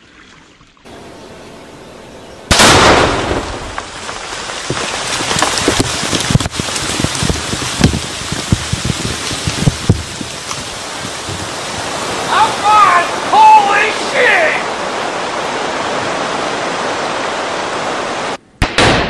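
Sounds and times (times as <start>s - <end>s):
loud explosion blast: 2.5s - 3.9s, 18.6s - 19.0s
debris raining onto water: 2.5s - 18.3s.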